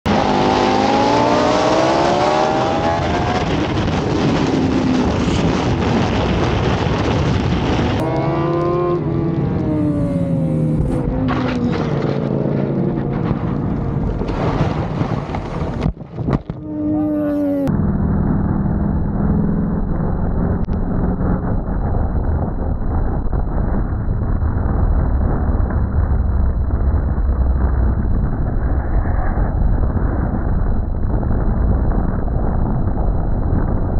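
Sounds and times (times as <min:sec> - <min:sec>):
motorcycle engine at racing speed: 0:00.1 - 0:14.4, 0:16.5 - 0:33.9
heavy wind noise: 0:00.1 - 0:33.9.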